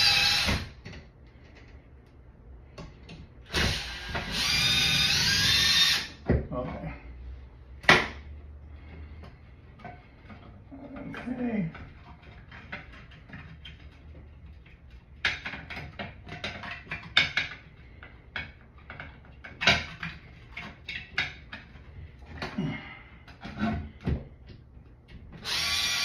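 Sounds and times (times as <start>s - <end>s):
hands working metal parts: 7.7s - 26.0s.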